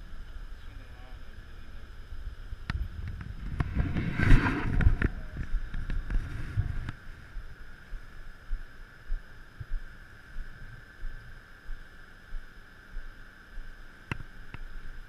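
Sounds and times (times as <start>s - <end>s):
wind on microphone: 2.1s - 7.6s.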